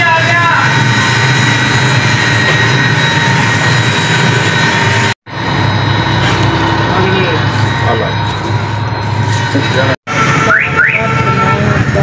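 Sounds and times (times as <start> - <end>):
mill machinery droning: 0.0 - 12.0.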